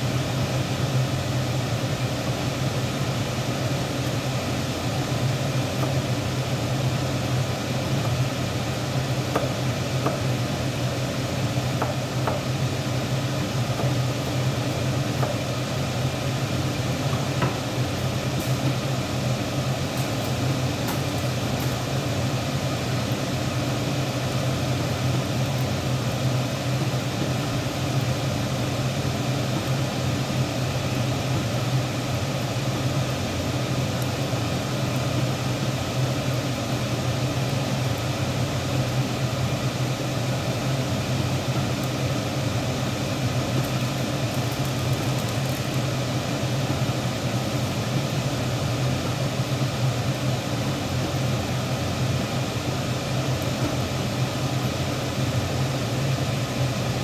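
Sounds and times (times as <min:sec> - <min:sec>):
low mechanical hum: 0:00.0 - 0:57.0
soup bubbling at a boil: 0:00.0 - 0:57.0.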